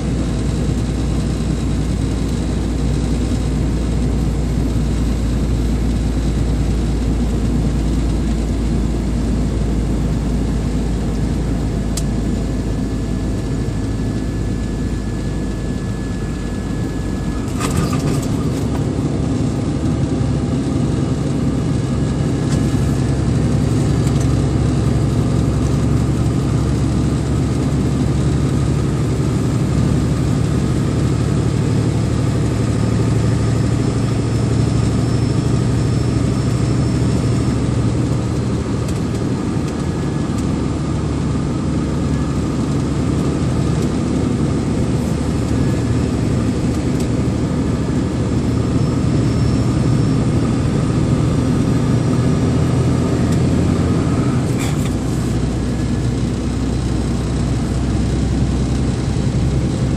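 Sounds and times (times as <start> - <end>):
road noise: 0.0 - 59.9
vehicle engine droning: 0.0 - 59.9.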